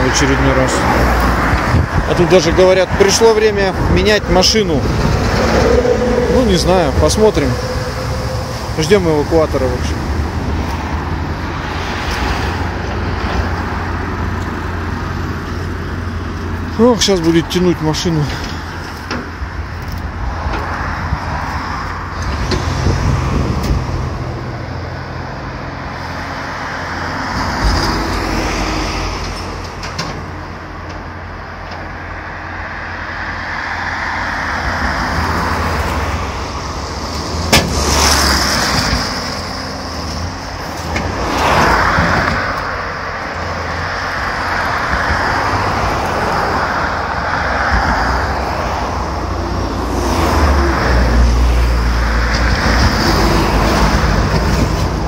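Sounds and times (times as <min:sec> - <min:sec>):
road traffic passing: 0:00.0 - 0:55.0
wind rumbling on microphone: 0:00.8 - 0:16.6, 0:19.2 - 0:25.0.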